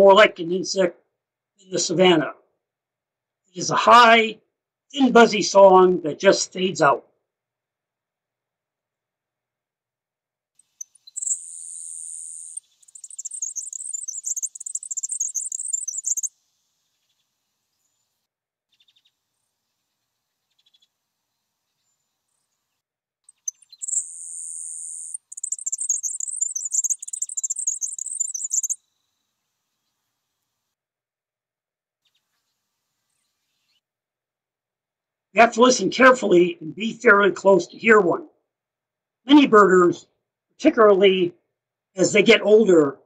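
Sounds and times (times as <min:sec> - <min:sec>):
sparrow buzzing song: 0:10.6 - 0:30.5.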